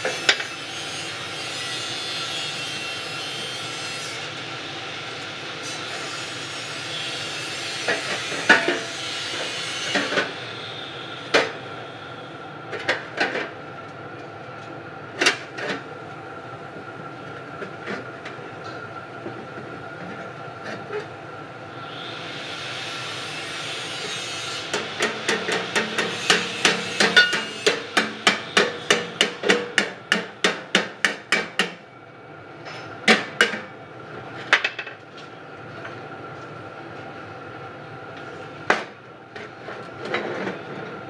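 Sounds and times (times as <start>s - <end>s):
hammer on sheet metal: 24.8s - 31.8s.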